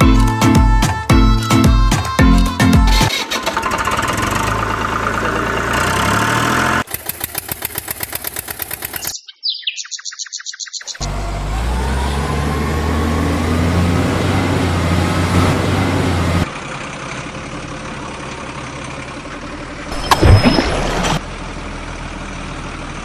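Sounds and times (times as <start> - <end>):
truck engine droning: 0.0 - 9.1, 11.0 - 23.0
quieter engine noise: 11.0 - 23.0.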